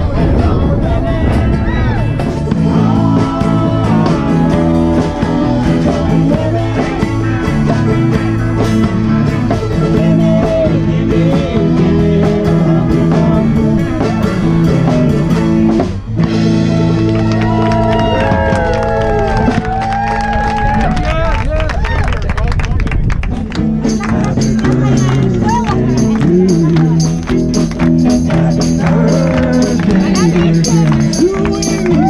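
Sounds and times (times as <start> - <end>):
live band playing: 0.0 - 21.0, 23.3 - 32.0.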